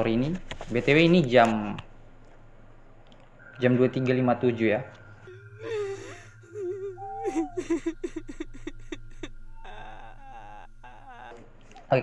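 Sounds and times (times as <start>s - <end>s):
steady low hum: 0.0s - 12.0s
eerie laughter sound effect: 5.2s - 12.0s
thin high tone: 5.2s - 12.0s.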